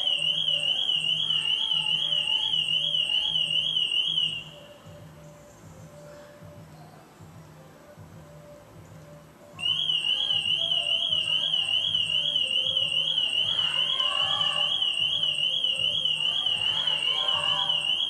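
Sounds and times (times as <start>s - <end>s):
car alarm warbling: 0.0s - 5.0s, 9.6s - 18.0s
faint low music beat: 0.0s - 18.0s.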